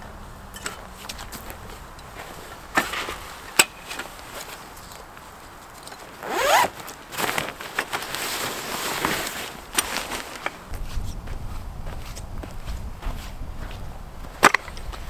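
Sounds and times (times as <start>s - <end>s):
zipper being pulled open: 6.2s - 7.4s.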